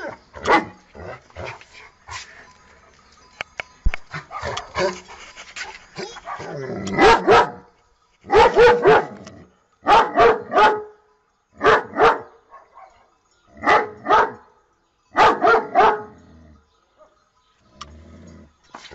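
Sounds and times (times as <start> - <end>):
dog barking: 0.0 - 0.8, 4.2 - 5.0, 6.0 - 7.6, 8.3 - 9.2, 9.8 - 10.9, 11.6 - 14.4, 15.2 - 16.1.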